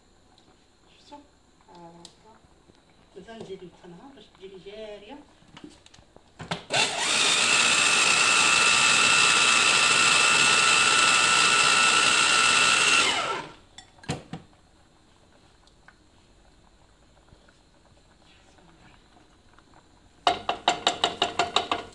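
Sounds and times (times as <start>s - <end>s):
electric food chopper motor whine: 6.6s - 13.6s.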